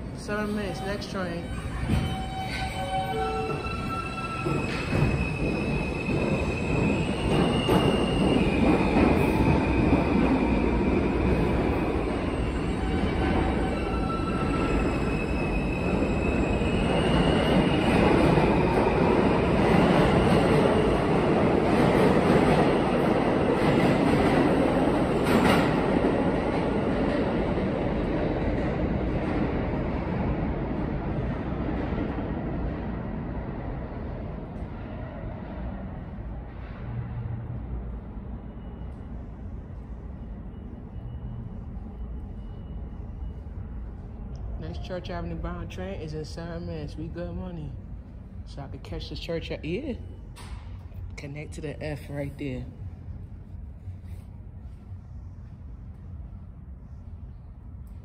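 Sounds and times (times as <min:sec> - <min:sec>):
train wheels rumbling on rail: 0:00.0 - 0:41.2.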